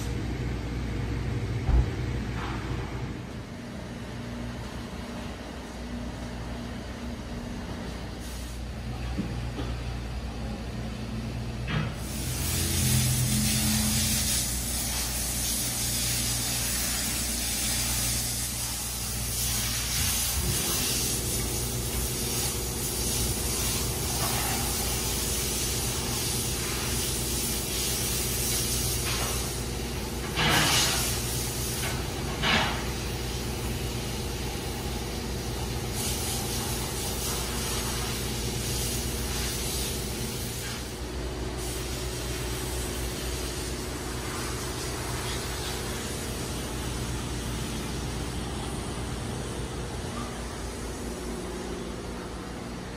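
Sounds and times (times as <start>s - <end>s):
car wash pumps humming: 0.0s - 52.9s
water spray hissing: 12.0s - 29.5s.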